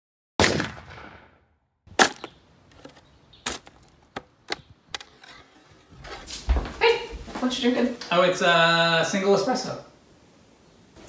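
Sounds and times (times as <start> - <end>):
shovel scraping into soil: 2.0 - 6.4.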